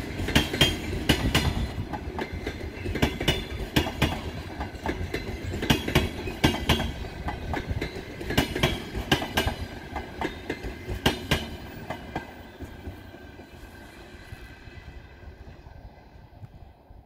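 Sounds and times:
train wheels clicking over rail joints: 0.0s - 13.6s
train rumble: 0.0s - 17.0s.

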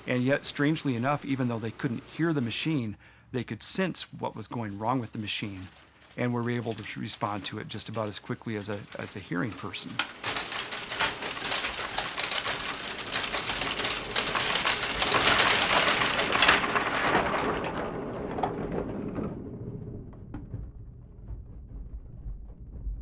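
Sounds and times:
typesetting machine clattering: 0.0s - 2.9s, 4.0s - 17.8s.

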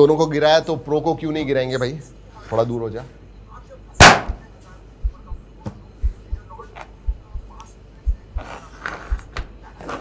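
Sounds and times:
heartbeat double thump: 5.0s - 8.5s, 9.1s - 9.4s.

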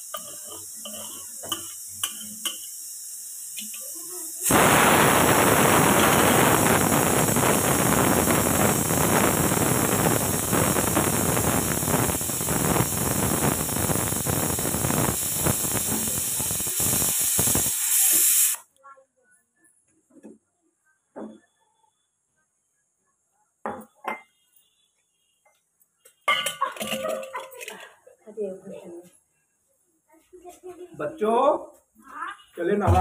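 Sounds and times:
pressure cooker releasing steam: 0.0s - 18.7s.

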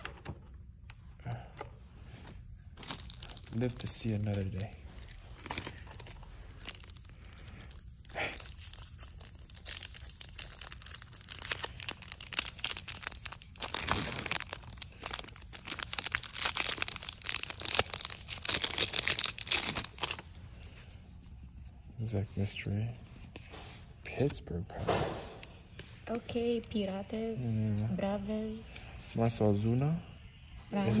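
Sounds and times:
foil wrapper tearing and crinkling: 2.8s - 20.4s.

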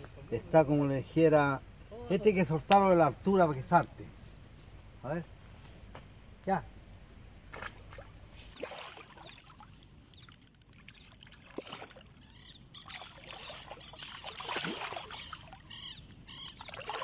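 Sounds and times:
small clicks: 10.1s - 11.2s.

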